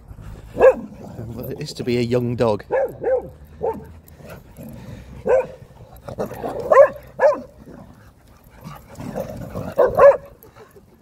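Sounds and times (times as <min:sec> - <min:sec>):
dog barking: 0:00.6 - 0:00.9, 0:02.7 - 0:04.0, 0:05.2 - 0:05.6, 0:06.5 - 0:07.6, 0:09.8 - 0:10.3.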